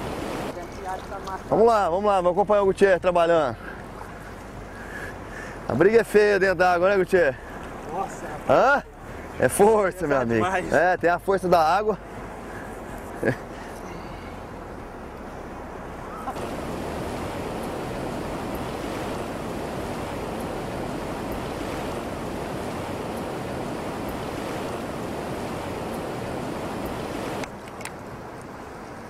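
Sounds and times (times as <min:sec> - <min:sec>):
river rapids rushing: 0:00.0 - 0:01.6, 0:15.9 - 0:27.6.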